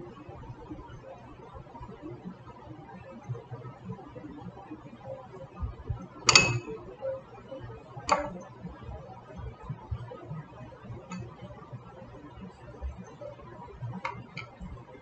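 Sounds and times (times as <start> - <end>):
object ticking against glass bowl: 6.2 - 6.8, 11.1 - 11.4
glass clinking: 6.3 - 6.8, 11.1 - 11.3.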